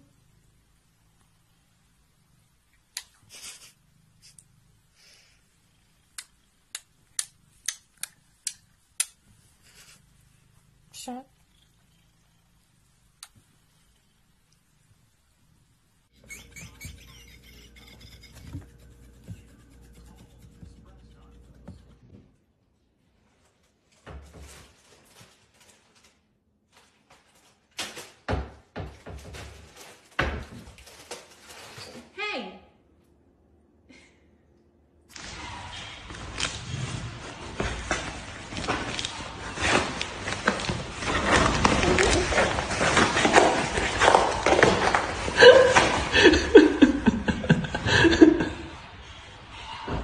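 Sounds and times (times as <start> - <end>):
kissing smacks: 6.1 - 9.2
plastic bag rustling: 24.4 - 27.8, 29.5 - 32.1, 36.2 - 45.7.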